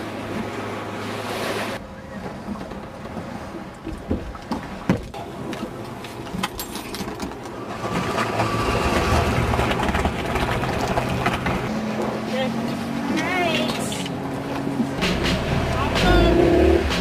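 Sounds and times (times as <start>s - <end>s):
knocks and bumps on boat: 1.9s - 12.8s
boat motor running: 7.2s - 17.0s.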